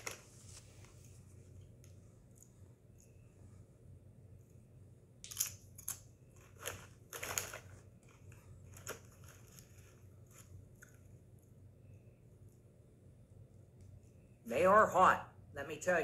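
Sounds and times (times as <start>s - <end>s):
foil chip bag crinkling: 0.0s - 0.9s, 5.3s - 11.0s
crunching chips: 5.2s - 11.0s.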